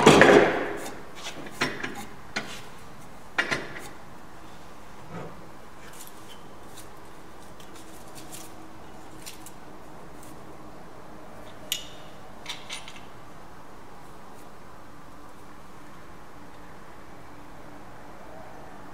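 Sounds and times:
hand tools clicking and knocking: 0.0s - 2.6s, 3.4s - 4.0s, 11.5s - 13.2s.

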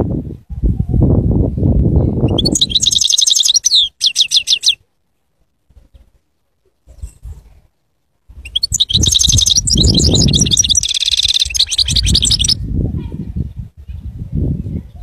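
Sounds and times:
finch twittering song: 2.0s - 4.8s, 8.4s - 12.6s.

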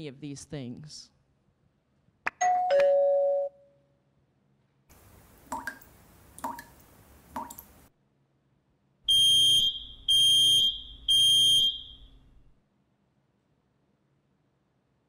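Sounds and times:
faint water drips: 4.9s - 7.9s
smoke alarm beeping: 9.1s - 12.2s.

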